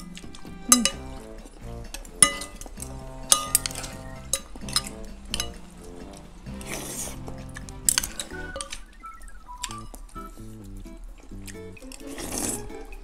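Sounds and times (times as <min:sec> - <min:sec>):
cutlery clinking on ceramic bowls: 0:00.0 - 0:01.2, 0:01.9 - 0:05.6
background music: 0:00.0 - 0:13.0.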